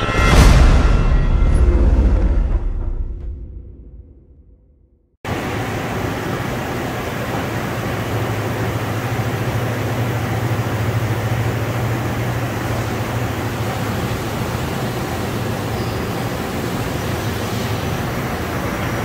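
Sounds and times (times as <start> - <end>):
low machine hum: 5.3 - 19.0.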